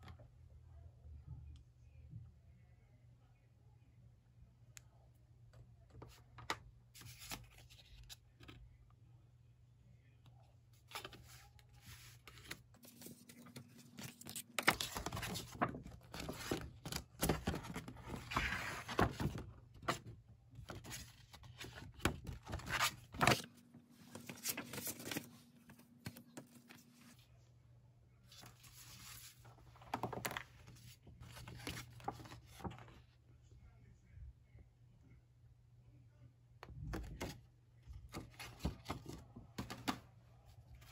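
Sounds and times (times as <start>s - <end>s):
paper rustling and crinkling: 10.8s - 27.2s, 28.3s - 33.0s.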